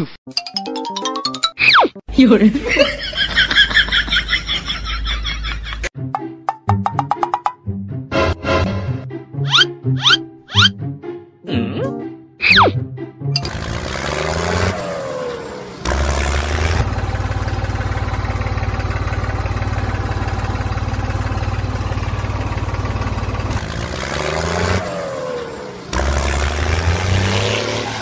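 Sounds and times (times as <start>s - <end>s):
tractor engine puttering: 13.4s - 28.0s.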